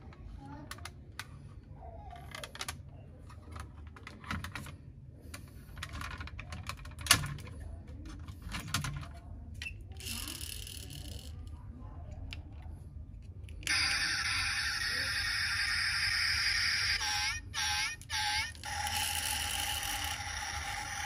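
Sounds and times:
toy cars clicking and knocking: 0:05.8 - 0:11.5, 0:13.3 - 0:21.0.

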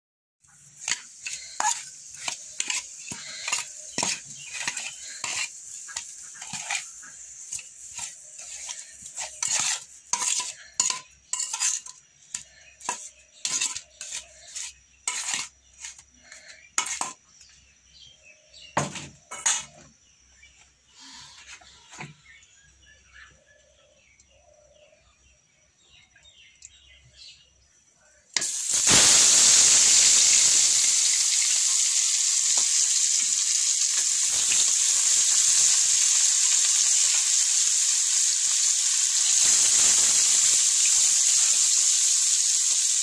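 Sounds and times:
metal bowl and spoon clinking: 0:00.8 - 0:06.9, 0:07.5 - 0:14.2
faint high hiss: 0:28.4 - 0:43.0.

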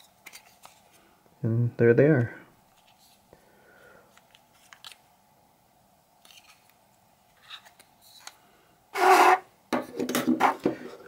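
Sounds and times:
harsh plastic scrape: 0:09.0 - 0:09.4.

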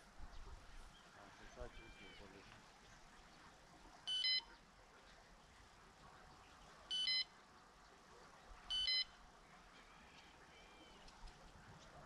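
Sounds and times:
bite alarm beeps: 0:04.1 - 0:04.5, 0:06.9 - 0:07.3, 0:08.7 - 0:09.1.

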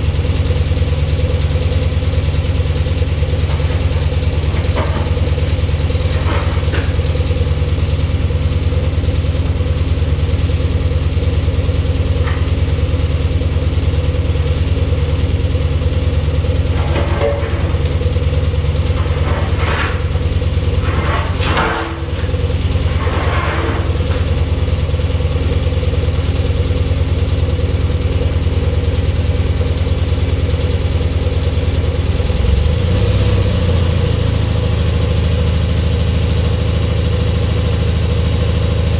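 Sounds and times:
engine idling: 0:00.0 - 0:38.9
heavy metal scraping on concrete: 0:18.8 - 0:24.4.

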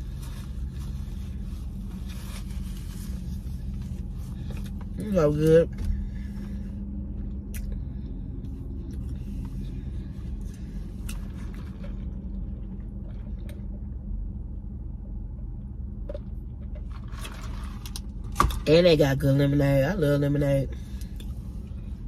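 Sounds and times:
car idling from inside cabin: 0:00.0 - 0:22.0.

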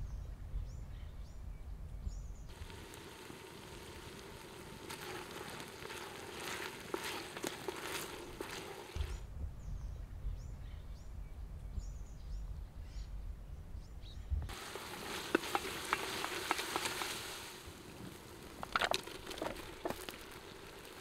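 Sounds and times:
vegetables sizzling in a pot: 0:02.5 - 0:09.2, 0:14.5 - 0:21.0
low rumble: 0:09.0 - 0:14.5.

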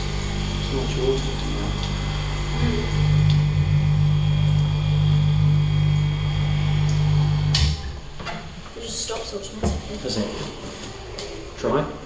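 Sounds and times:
dryer stopping noise burst: 0:00.0 - 0:08.2
spin dryer humming: 0:00.0 - 0:09.1.

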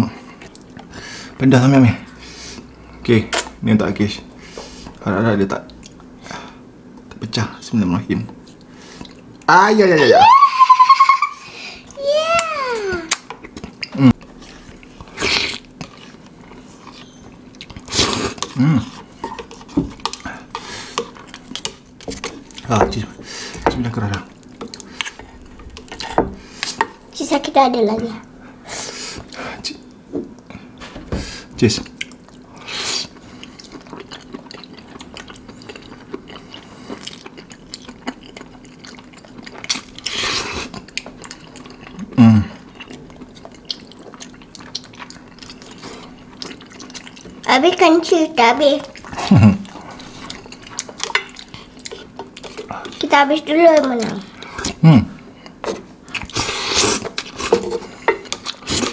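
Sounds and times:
wet chewing: 0:12.3 - 0:27.1, 0:31.8 - 0:58.9
person grunting: 0:18.6 - 0:18.9.

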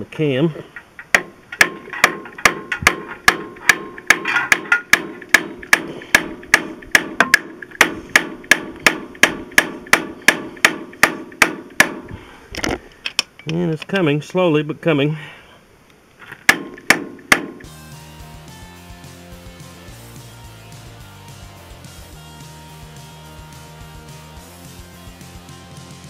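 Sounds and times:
hammer striking metal bolt: 0:01.0 - 0:12.1, 0:16.4 - 0:17.7.

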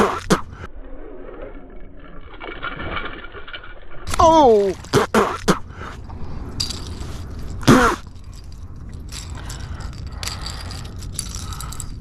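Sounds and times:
person exclaiming: 0:04.1 - 0:05.1.

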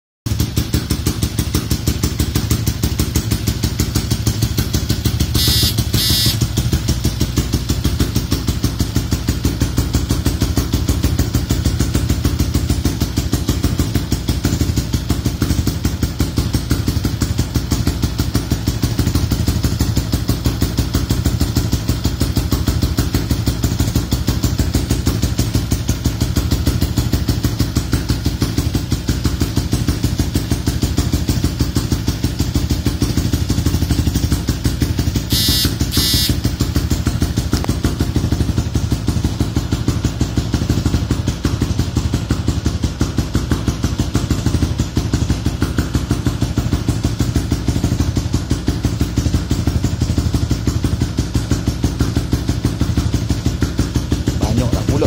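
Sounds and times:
motorcycle engine idling: 0:00.3 - 0:55.0
high-pitched double chirp: 0:05.4 - 0:06.4, 0:35.3 - 0:36.4.

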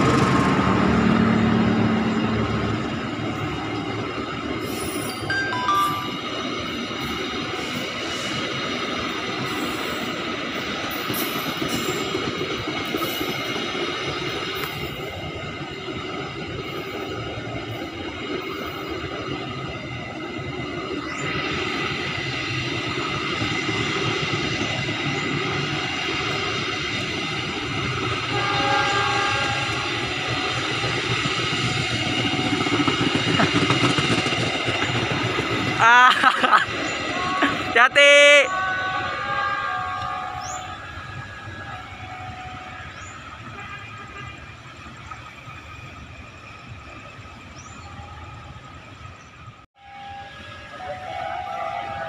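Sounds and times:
train coaches rolling on rails: 0:00.0 - 0:52.0
thin high tones: 0:04.8 - 0:06.7
train horn: 0:28.2 - 0:30.9, 0:37.1 - 0:44.5, 0:49.8 - 0:52.0.

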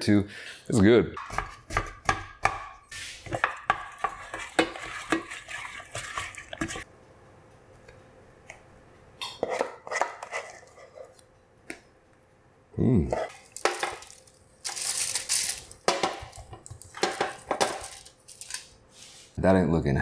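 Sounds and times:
spoon scraping and knocking pan: 0:03.2 - 0:06.8, 0:09.2 - 0:11.2, 0:15.8 - 0:18.0
spoon stirring mashed potatoes: 0:03.2 - 0:06.9.

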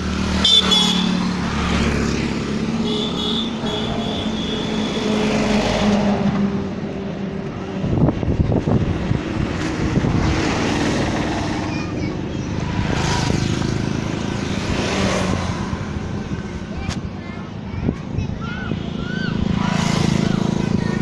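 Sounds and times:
wind buffeting microphone: 0:06.2 - 0:21.0.

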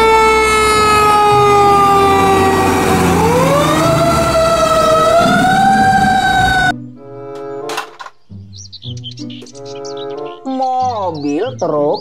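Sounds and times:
fire truck siren wailing: 0:00.0 - 0:06.8.

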